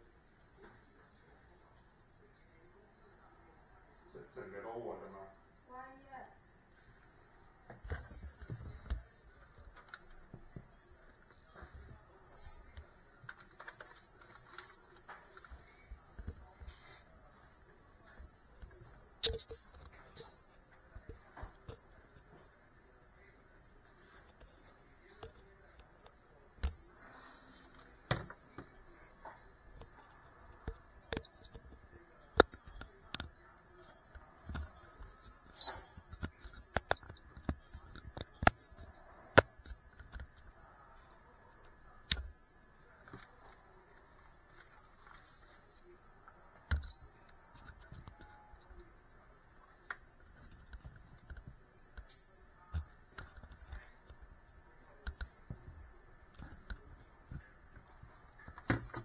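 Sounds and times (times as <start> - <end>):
hands handling small hard parts: 8.4 - 16.4.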